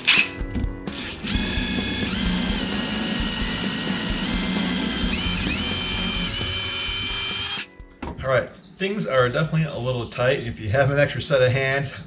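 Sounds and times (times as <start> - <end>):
impact driver drilling sheet metal: 0.9 - 7.7.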